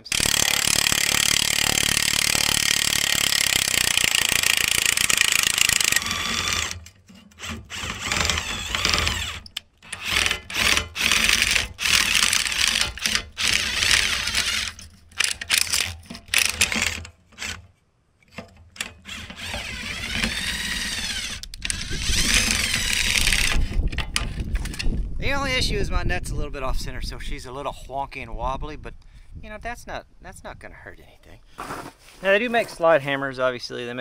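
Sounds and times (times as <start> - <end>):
impact driver motor whine: 0.0 - 17.6, 19.0 - 23.8.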